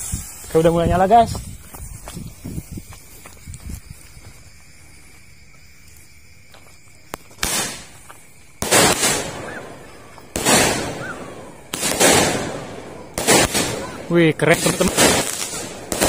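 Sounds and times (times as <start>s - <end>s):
fuse hissing: 0.0s - 5.0s
roman candle shots: 7.1s - 16.0s.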